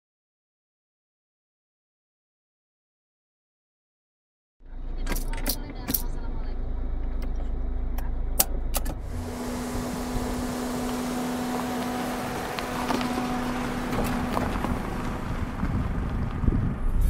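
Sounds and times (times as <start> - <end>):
car engine hum: 4.6 - 17.0
constant rushing noise: 8.9 - 17.0
tyres rolling over gravel: 9.0 - 16.9
stones ticking under tyres: 9.9 - 16.8.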